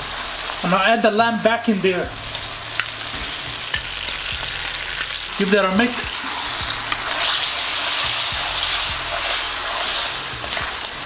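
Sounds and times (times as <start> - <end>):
meat sizzling in hot oil: 0.0 - 11.0
spatula scraping wok: 2.2 - 11.0.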